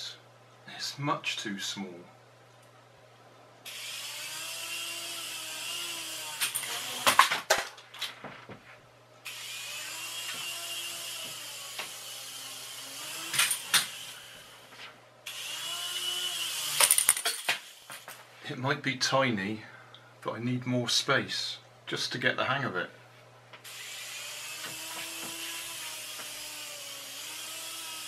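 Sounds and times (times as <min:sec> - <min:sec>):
toy helicopter motors whirring: 0:03.7 - 0:07.2, 0:09.2 - 0:18.1, 0:23.6 - 0:28.0.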